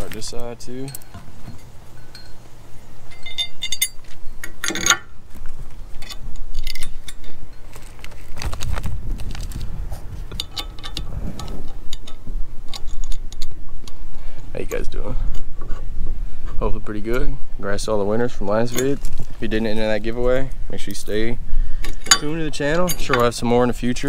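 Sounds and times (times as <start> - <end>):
metal bracket and screws clinking: 0.0 - 5.2, 5.9 - 8.4, 10.3 - 13.9, 18.6 - 19.8, 21.8 - 23.5
low rubbing rumble: 8.2 - 13.0.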